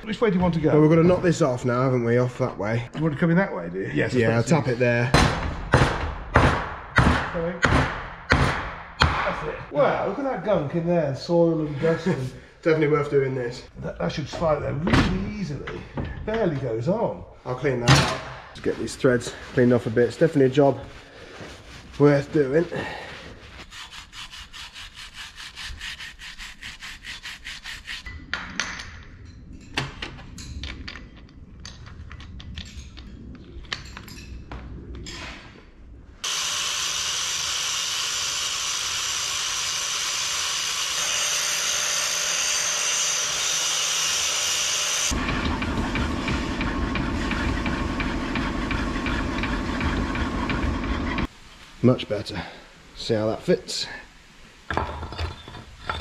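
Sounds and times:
angle grinder running: 0:36.2 - 0:51.3.

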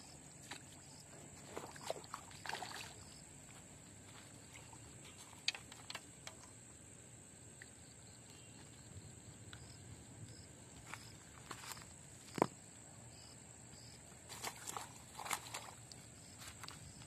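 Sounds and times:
insects droning: 0:00.0 - 0:17.0
footsteps on rocks: 0:10.8 - 0:12.6.

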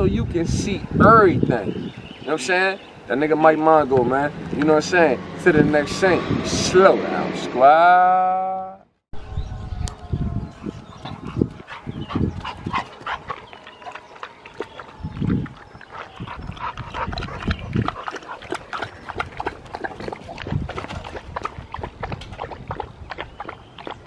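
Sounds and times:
low thumps: 0:03.8 - 0:07.8.

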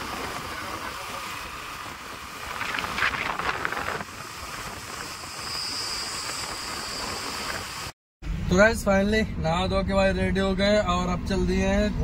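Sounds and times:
wind on microphone: 0:00.0 - 0:07.9
road noise: 0:00.0 - 0:12.0.

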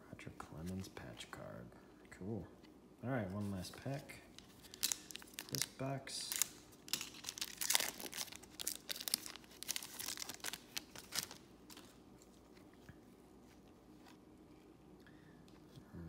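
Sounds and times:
foil wrapper crinkling: 0:04.3 - 0:12.5.

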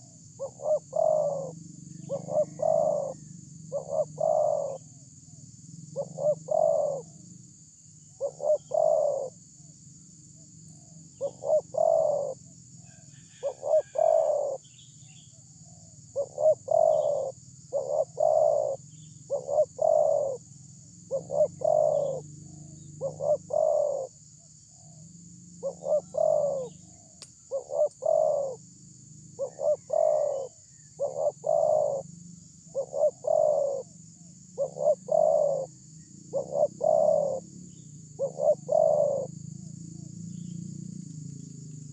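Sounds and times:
dove cooing: 0:00.0 - 0:04.9, 0:05.9 - 0:07.2, 0:08.2 - 0:09.4, 0:11.2 - 0:14.7, 0:16.1 - 0:20.5, 0:21.1 - 0:24.2, 0:25.6 - 0:28.6, 0:29.4 - 0:32.1, 0:32.7 - 0:37.5, 0:38.2 - 0:39.4.

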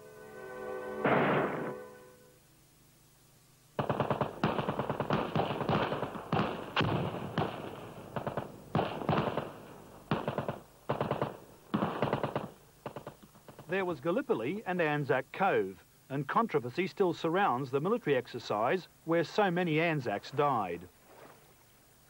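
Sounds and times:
machine-gun fire in short bursts: 0:03.8 - 0:13.7.

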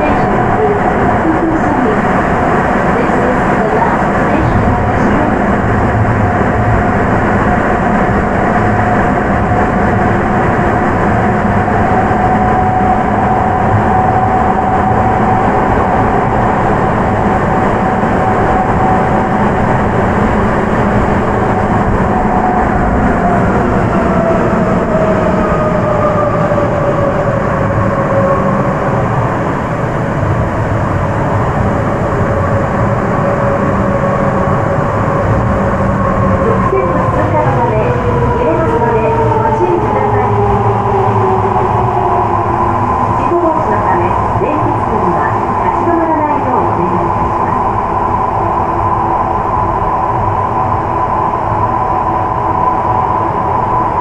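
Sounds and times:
train running with dense rumble: 0:00.0 - 0:54.0.

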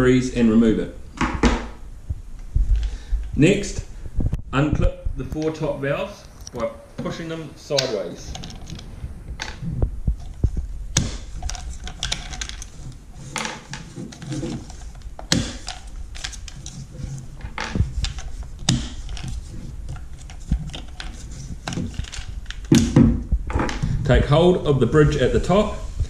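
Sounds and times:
hard plastic parts clicking: 0:06.3 - 0:23.9.

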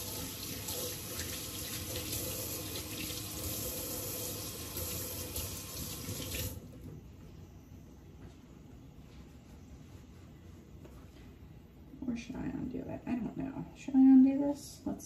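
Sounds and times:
faucet running into sink: 0:00.0 - 0:06.6.

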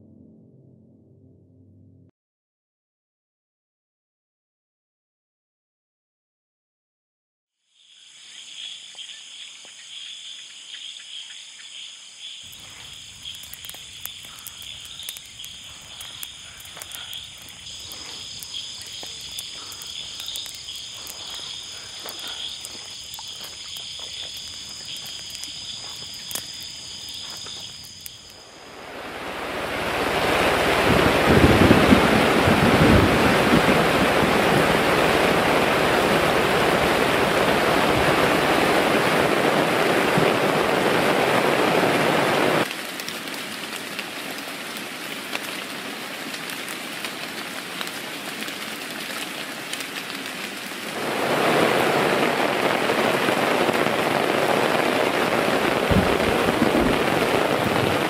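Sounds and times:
high-pitched insect chorus: 0:07.7 - 0:39.2
small clicks: 0:12.5 - 0:26.6
loud rushing water: 0:28.2 - 0:58.0.

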